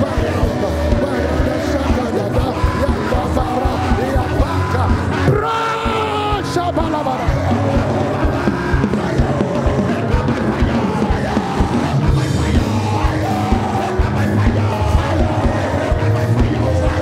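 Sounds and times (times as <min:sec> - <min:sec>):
crowd praying and shouting: 0:00.0 - 0:17.0
live church music: 0:00.0 - 0:17.0
steady drum beat: 0:00.0 - 0:17.0.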